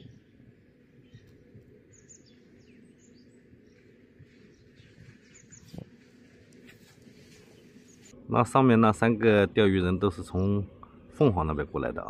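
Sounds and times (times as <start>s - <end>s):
faint birds chirping: 0.0s - 8.9s
low outdoor background noise: 0.0s - 12.0s.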